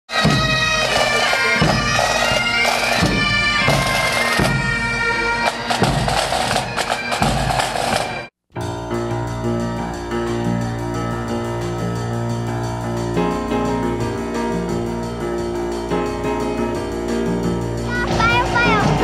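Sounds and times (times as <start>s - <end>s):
bagpipes playing: 0.1s - 8.3s
bass drum beats: 16.9s - 19.0s.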